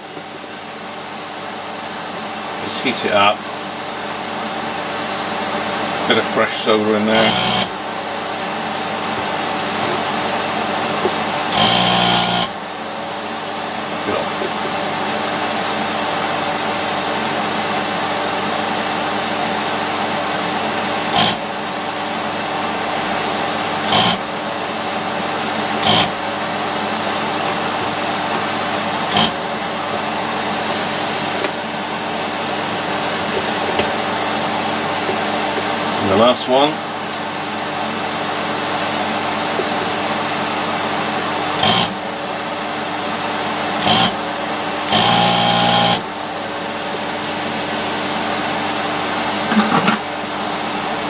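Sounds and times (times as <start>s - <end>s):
desoldering tool whirring and hissing: 7.1s - 7.7s, 11.0s - 12.5s, 21.1s - 21.4s, 23.8s - 24.2s, 25.8s - 26.2s, 29.0s - 29.4s, 41.6s - 42.0s, 43.8s - 44.2s, 44.9s - 46.0s
loud buzz: 7.1s - 7.8s, 11.5s - 12.6s, 21.1s - 21.4s, 23.8s - 24.3s, 25.8s - 26.2s, 29.1s - 29.4s, 41.6s - 42.0s, 43.8s - 44.2s, 44.9s - 46.1s.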